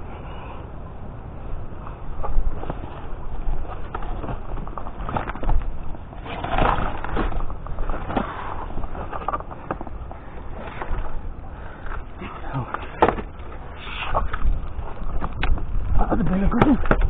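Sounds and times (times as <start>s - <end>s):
rubbish bags rustling: 2.4s - 15.2s
items knocking and clattering: 12.7s - 13.5s, 14.9s - 17.0s.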